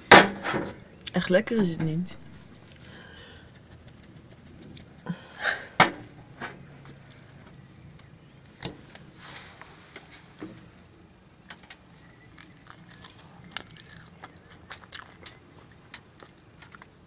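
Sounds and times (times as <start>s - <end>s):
light rapid clicks: 2.4s - 5.1s.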